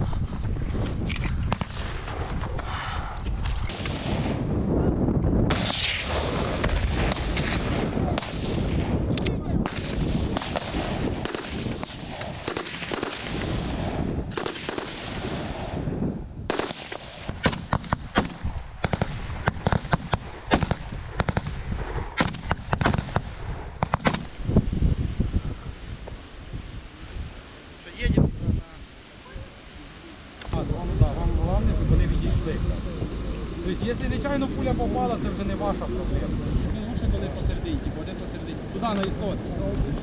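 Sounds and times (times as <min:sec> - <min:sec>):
rifle gunfire: 0:03.7 - 0:04.5, 0:05.5 - 0:09.0, 0:09.7 - 0:15.8, 0:16.5 - 0:24.3.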